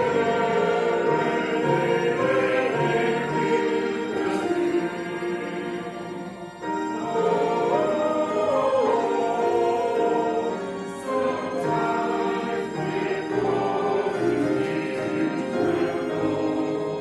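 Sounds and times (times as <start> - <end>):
choir singing a hymn: 0.0 - 17.0.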